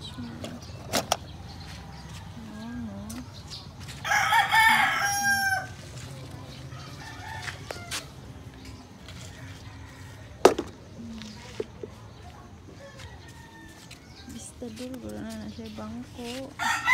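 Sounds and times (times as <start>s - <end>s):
rooster crowing: 4.0s - 5.8s, 6.7s - 8.1s, 16.6s - 16.9s.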